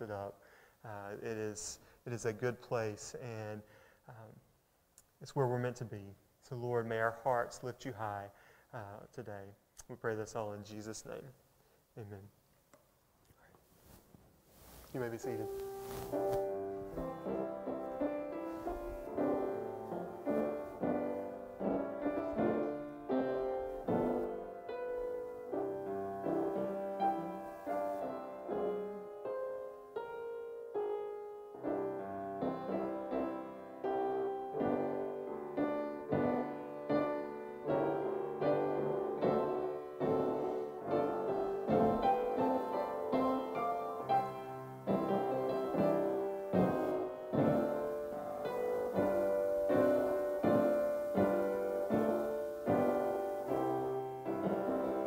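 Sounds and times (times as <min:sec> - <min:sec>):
piano playing: 0:15.0 - 0:55.0.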